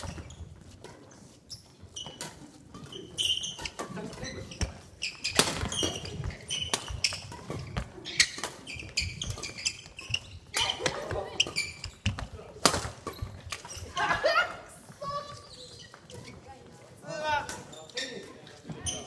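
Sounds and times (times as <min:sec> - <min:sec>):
sneakers squeaking on wooden floor: 0:00.0 - 0:14.0, 0:14.7 - 0:19.0
racket hitting shuttlecock: 0:02.0 - 0:14.0.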